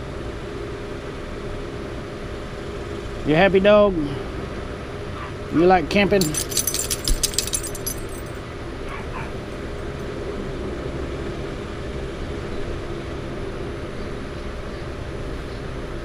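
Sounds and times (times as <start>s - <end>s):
steady background hum: 0.0s - 16.0s
collar tags jingling: 5.9s - 10.1s.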